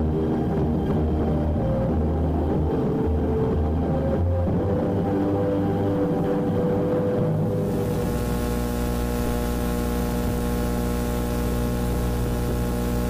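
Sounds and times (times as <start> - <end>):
steady hum with hiss: 7.2 - 13.0.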